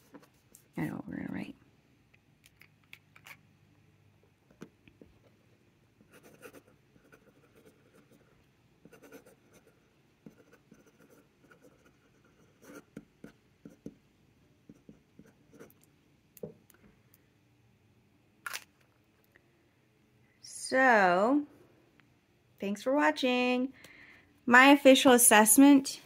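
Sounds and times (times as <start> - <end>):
pen scratching on paper: 6.0 - 14.0, 14.7 - 15.8.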